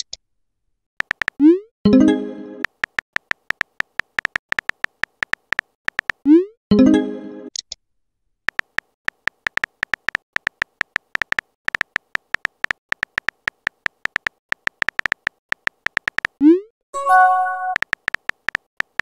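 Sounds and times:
keyboard clicking rapidly: 1.0s - 1.4s, 2.6s - 6.2s, 8.5s - 16.4s, 17.7s - 19.0s
brief chime: 17.0s - 17.8s.

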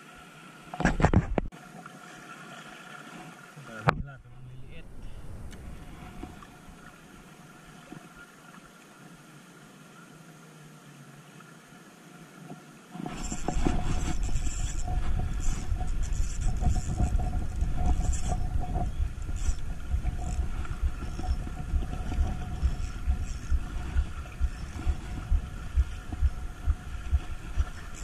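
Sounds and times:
wind buffeting microphone: 4.0s - 6.9s, 13.1s - 28.0s.

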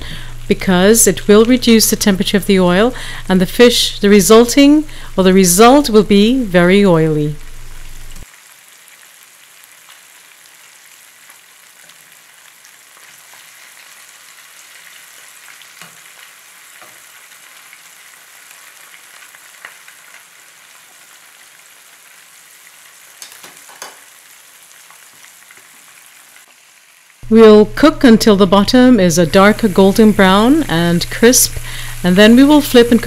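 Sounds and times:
fish frying in hot oil: 7.3s - 27.3s, 28.7s - 33.0s.

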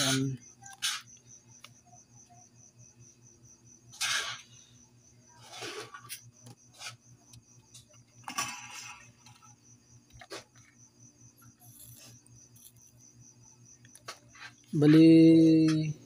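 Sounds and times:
rustling of wire: 11.4s - 13.0s.

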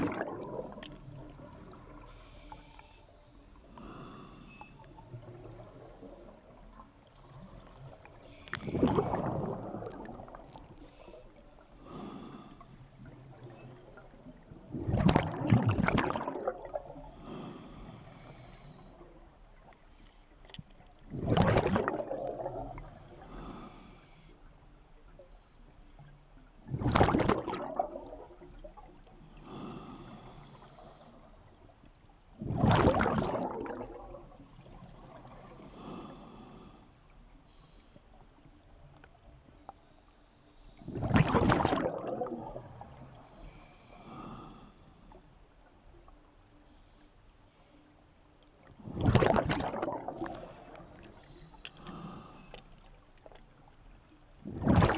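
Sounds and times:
diver exhaling bubbles underwater: 0.0s - 1.0s, 8.6s - 10.6s, 14.7s - 17.1s, 21.1s - 22.9s, 26.7s - 28.5s, 32.4s - 35.2s, 40.8s - 42.9s, 48.8s - 50.7s, 54.4s - 54.9s.

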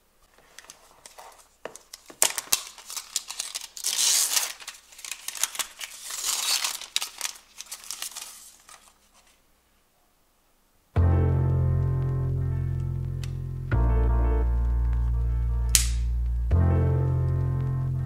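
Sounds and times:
plastic wrapping crinkling and tearing: 0.3s - 9.4s.

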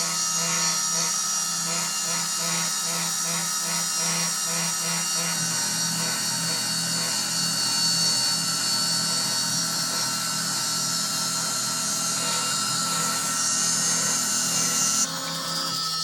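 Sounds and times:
stepper motors humming: 0.0s - 15.9s
router spindle whining: 0.0s - 16.0s.

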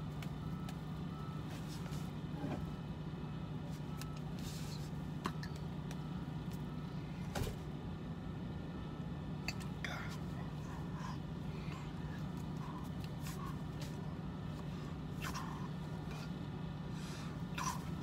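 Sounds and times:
vehicle cab hum: 0.0s - 18.0s.

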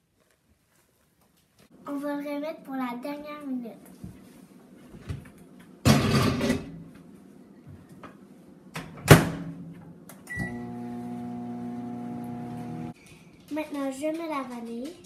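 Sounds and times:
microwave humming: 10.2s - 13.0s.

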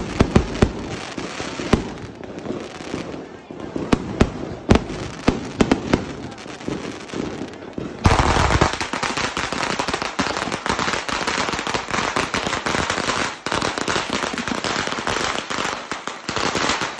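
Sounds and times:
fireworks popping and banging: 0.0s - 16.9s.

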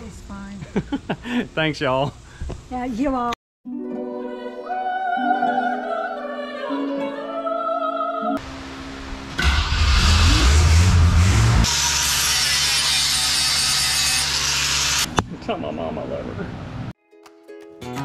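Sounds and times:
plucked-string background music: 3.7s - 7.6s, 17.0s - 18.0s
angle grinder grinding metal: 9.4s - 15.1s.

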